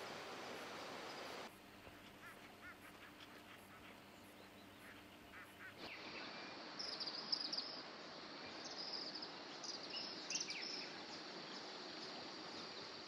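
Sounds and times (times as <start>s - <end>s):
bird chirps: 2.2s - 7.8s.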